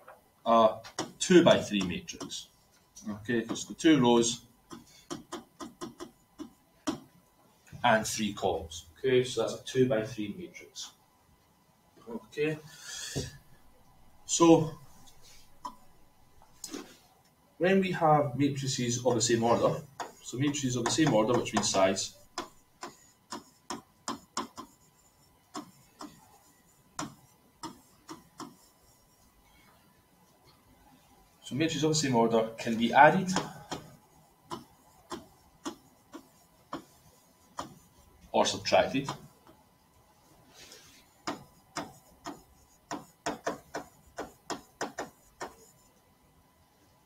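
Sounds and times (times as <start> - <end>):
stylus tapping on writing surface: 4.7 - 7.1, 20.0 - 21.8, 22.4 - 24.8, 27.0 - 28.7, 33.3 - 37.8, 41.2 - 45.7.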